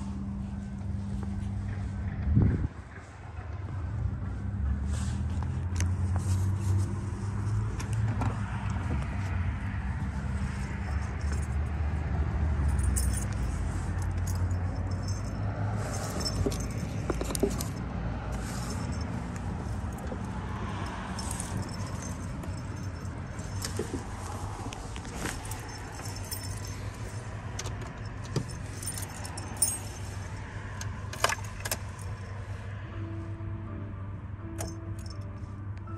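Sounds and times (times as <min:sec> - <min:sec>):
light jingling and clicking: 0:10.4 - 0:32.4.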